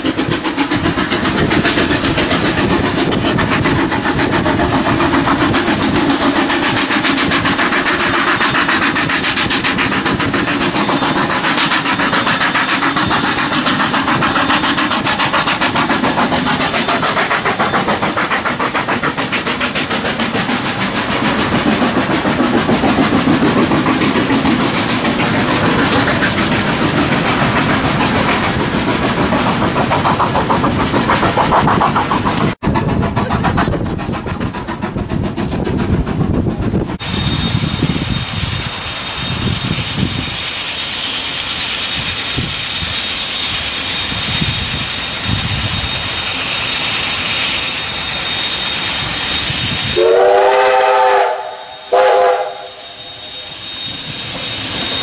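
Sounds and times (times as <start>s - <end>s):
steam locomotive exhaust: 0.0s - 55.0s
steam whistle: 48.2s - 55.0s.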